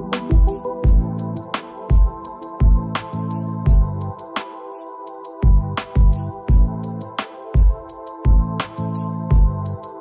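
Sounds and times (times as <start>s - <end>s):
held synth chords: 0.0s - 2.8s.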